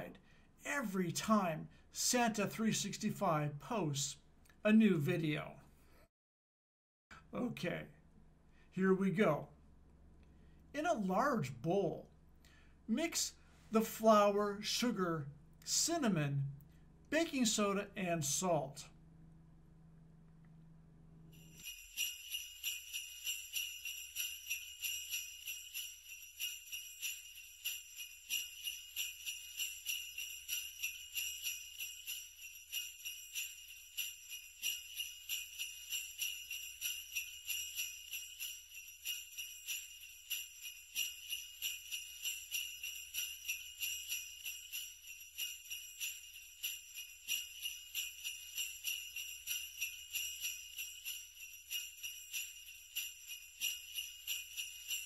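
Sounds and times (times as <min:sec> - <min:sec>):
sleigh bells jingling: 0:21.4 - 0:55.0.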